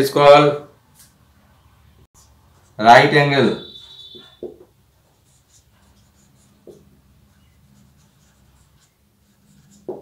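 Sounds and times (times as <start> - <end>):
marker scratching on whiteboard: 3.6 - 10.0.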